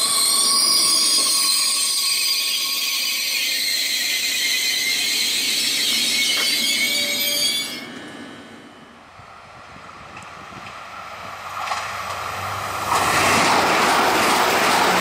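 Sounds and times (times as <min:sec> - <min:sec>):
train wheels and brakes squealing: 0:00.0 - 0:08.9
low train rumble: 0:04.0 - 0:15.0.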